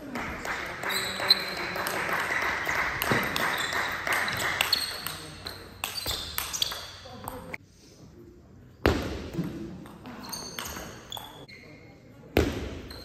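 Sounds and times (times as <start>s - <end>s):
spectators clapping: 0.0s - 4.8s
table tennis ball ping: 2.9s - 7.6s, 8.8s - 11.5s, 12.4s - 13.0s.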